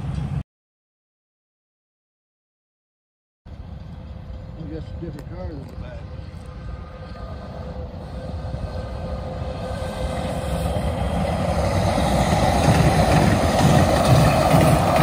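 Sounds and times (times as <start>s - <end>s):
light-rail train passing: 0.0s - 0.4s, 3.5s - 15.0s
wheel-on-rail rumble: 3.5s - 15.0s.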